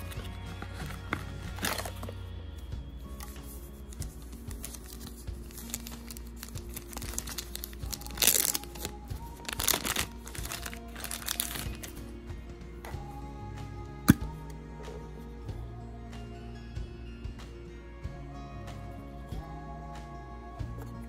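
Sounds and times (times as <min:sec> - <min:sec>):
plastic packaging crinkling: 0:00.0 - 0:02.2, 0:03.1 - 0:12.0
background music: 0:00.0 - 0:21.0.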